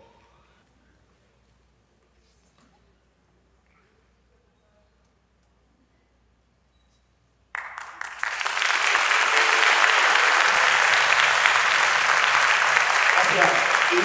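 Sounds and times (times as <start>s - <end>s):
audience applause: 7.5s - 14.0s.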